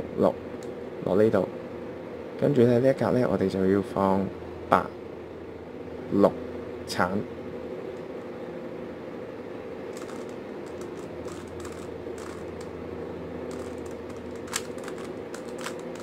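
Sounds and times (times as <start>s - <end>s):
steady low hum: 0.0s - 16.0s
puzzle cube clicking: 10.0s - 12.7s, 13.5s - 16.0s.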